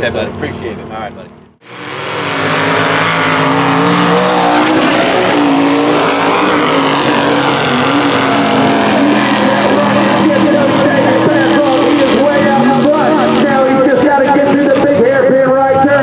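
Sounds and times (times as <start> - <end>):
truck engine running hard: 0.0 - 16.0.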